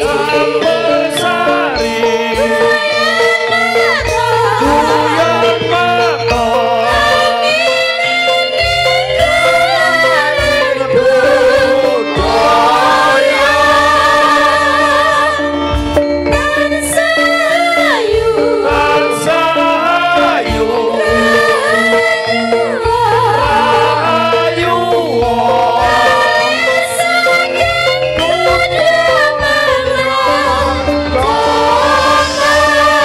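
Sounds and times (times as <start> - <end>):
band playing: 0.0 - 33.0
women singing with vibrato: 0.0 - 33.0
drum strokes: 8.6 - 33.0.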